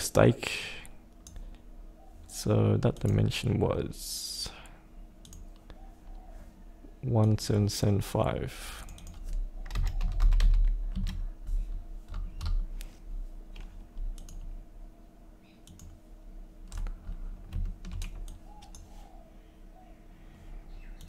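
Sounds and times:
faint steady hum: 0.0s - 21.0s
keyboard and mouse clicking: 5.2s - 5.7s, 8.9s - 11.2s, 13.5s - 14.5s, 15.6s - 16.0s, 16.6s - 18.9s.

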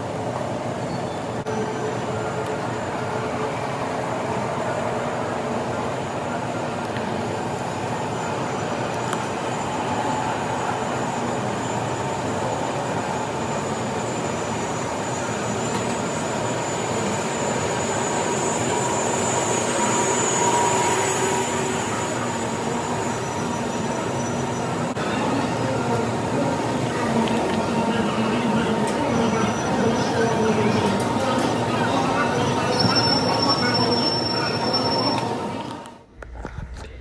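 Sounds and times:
thin high whine: 7.4s - 36.9s.

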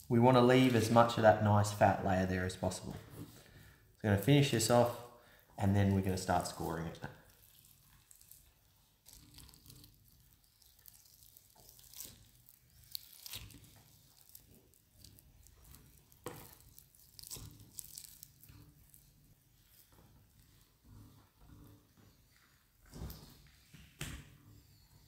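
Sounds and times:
ham skin tearing: 6.7s - 19.1s.

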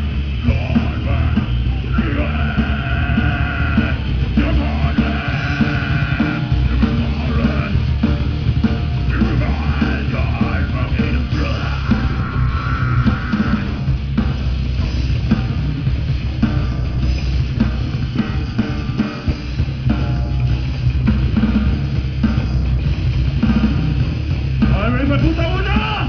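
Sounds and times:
heavy rock band playing: 0.0s - 26.0s
shouted vocals: 0.5s - 7.9s, 9.1s - 13.7s.

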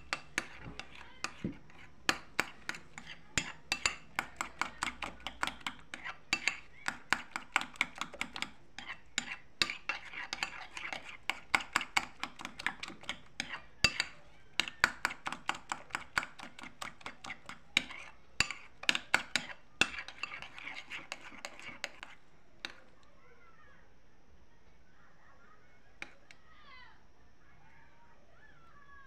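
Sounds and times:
cutlery clinking against ceramic bowl: 0.0s - 22.8s.

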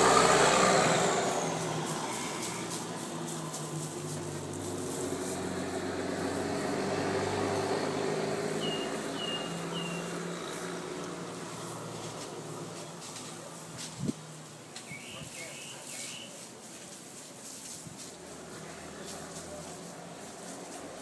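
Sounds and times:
high bird chirps: 8.6s - 10.2s, 14.8s - 16.4s.

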